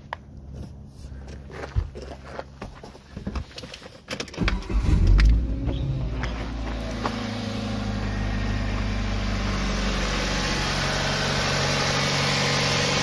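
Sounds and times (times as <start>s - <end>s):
car engine idling: 4.4s - 13.0s.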